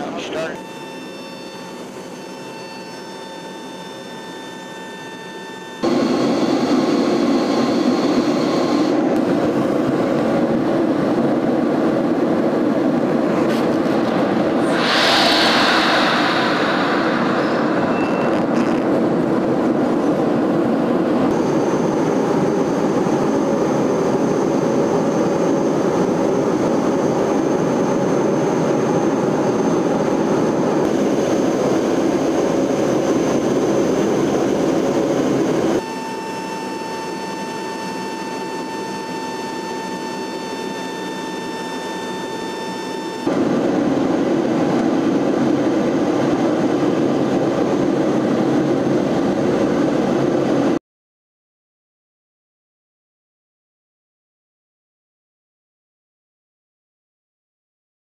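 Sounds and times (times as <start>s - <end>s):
aircraft cabin engine drone: 0.0s - 50.8s
steady whining tones: 12.6s - 43.7s.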